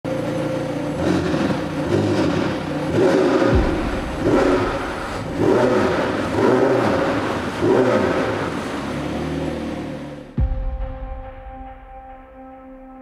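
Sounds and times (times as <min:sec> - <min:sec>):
car engine revving: 0:00.1 - 0:10.4.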